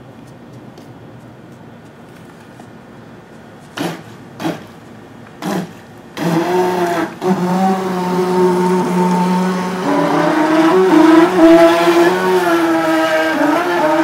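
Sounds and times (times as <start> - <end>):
electric boat motor whining: 5.4 - 14.0
motor throttle blips: 5.4 - 14.0.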